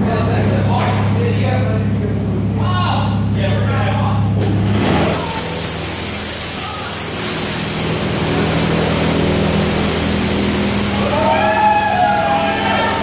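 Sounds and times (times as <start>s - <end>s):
low machine hum: 0.0s - 13.0s
high-pressure water spray hissing: 4.7s - 13.0s.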